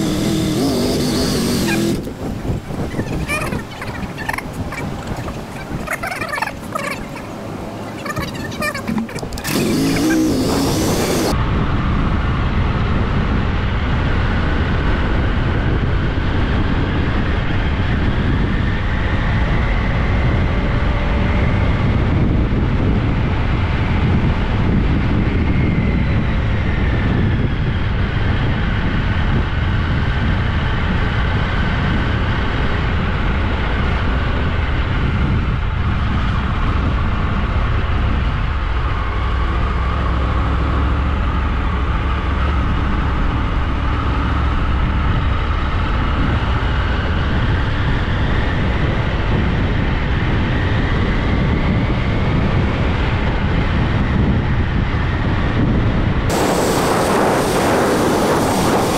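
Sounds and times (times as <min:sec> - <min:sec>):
faint sliding whining tones: 0:00.0 - 0:11.4
low rumble of vehicles: 0:00.0 - 0:58.9.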